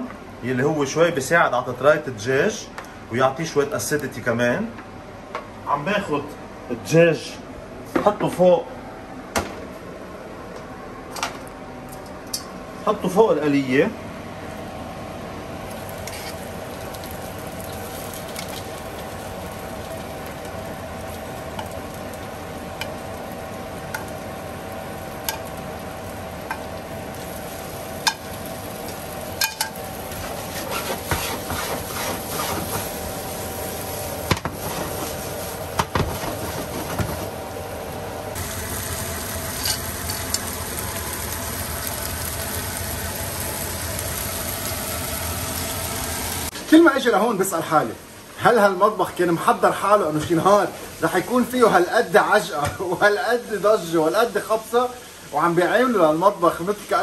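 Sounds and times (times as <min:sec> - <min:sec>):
chicken sizzling in hot oil: 0:15.6 - 0:36.7, 0:38.3 - 0:46.6.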